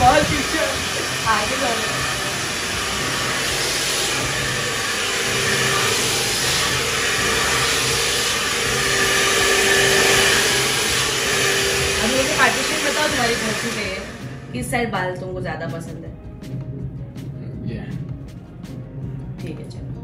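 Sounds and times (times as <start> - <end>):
hair dryer blowing: 0.0 - 14.9.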